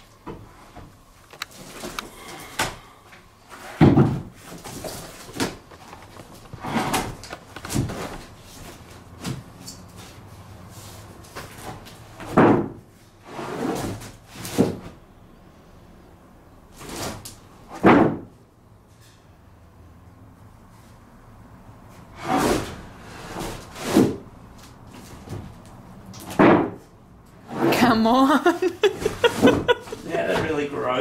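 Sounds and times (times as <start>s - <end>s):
wooden floorboards knocking: 3.8s - 4.3s.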